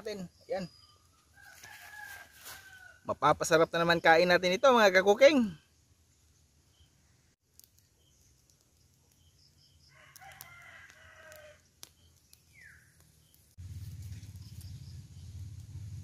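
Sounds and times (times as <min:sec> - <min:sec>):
rooster crowing: 0:01.3 - 0:03.1, 0:09.8 - 0:11.6
falling bird chirp: 0:07.8 - 0:15.6.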